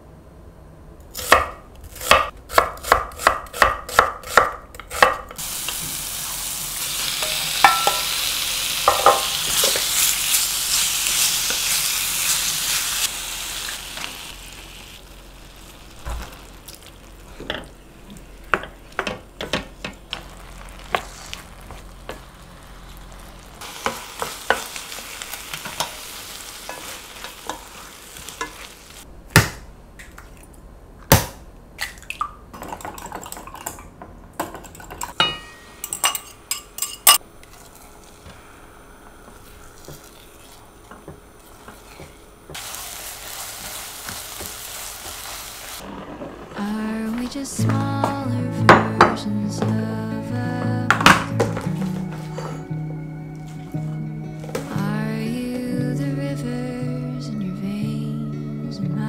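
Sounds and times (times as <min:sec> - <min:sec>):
steady hiss: 0:05.4 - 0:18.5, 0:20.0 - 0:29.1, 0:37.7 - 0:48.5
kitchen taps and clinks: 0:08.9 - 0:09.2.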